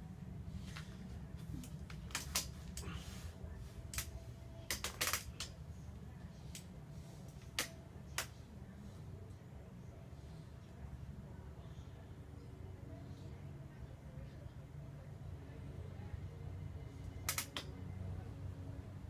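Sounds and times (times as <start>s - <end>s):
steady low rumble: 0.0s - 4.7s
sharp clicks: 17.2s - 17.7s.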